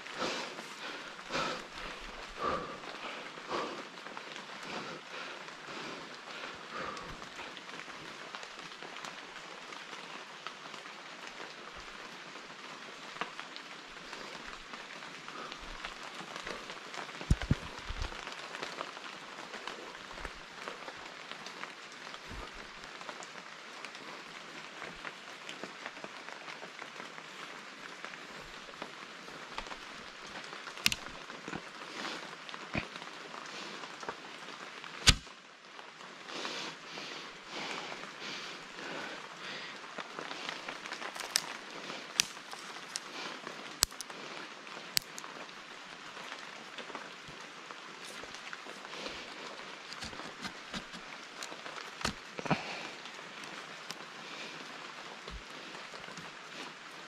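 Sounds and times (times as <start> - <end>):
rain pattering on foliage: 0.0 - 57.0
sharp clicks and knocks: 17.3 - 18.1.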